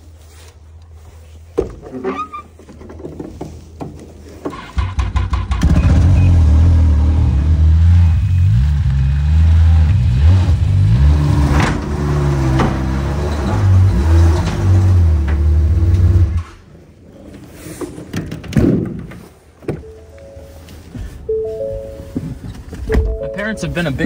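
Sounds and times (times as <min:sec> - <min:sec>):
snowmobile engine revving: 0:04.8 - 0:16.4.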